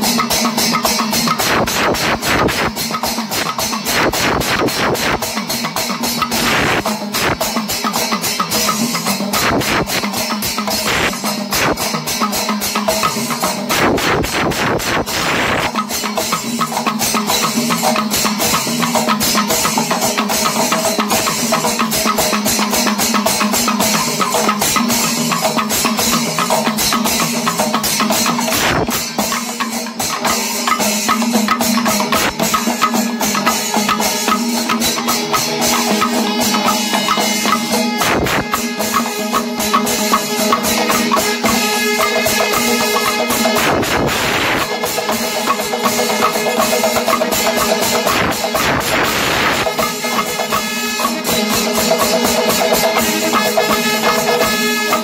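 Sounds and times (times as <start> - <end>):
cymbal strokes: 0.0 - 55.0
fast dense drumming: 0.0 - 55.0
steady held tone: 26.2 - 55.0.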